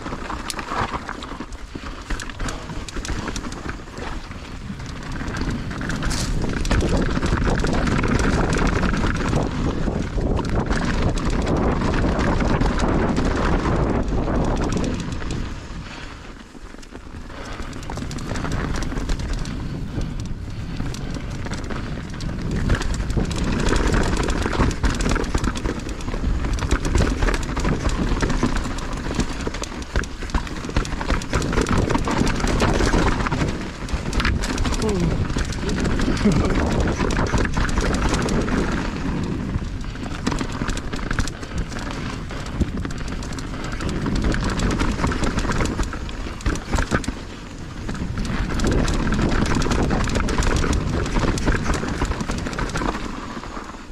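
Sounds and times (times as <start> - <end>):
bike clattering over bumps: 0.0 - 53.9
bike tyres on rough ground: 0.0 - 53.9
low rumble on microphone: 30.5 - 40.2.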